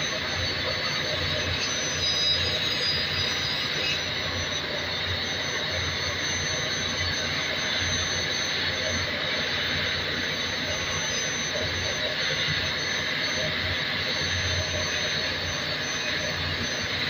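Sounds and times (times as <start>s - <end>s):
engine room machinery drone: 0.0s - 17.0s
thin steady high tone: 0.0s - 17.0s.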